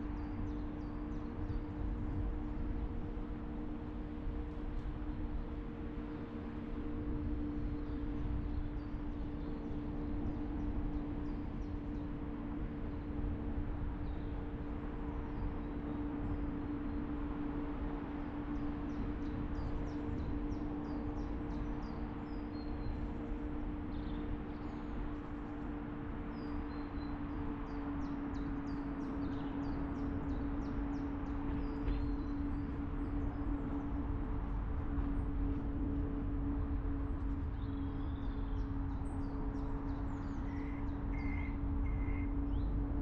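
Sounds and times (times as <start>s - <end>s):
small birds chirping: 18.2s - 35.0s, 37.3s - 42.9s.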